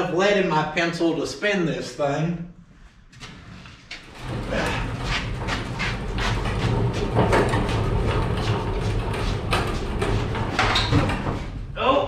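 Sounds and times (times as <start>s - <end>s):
dollies rolling on concrete: 4.0s - 10.8s.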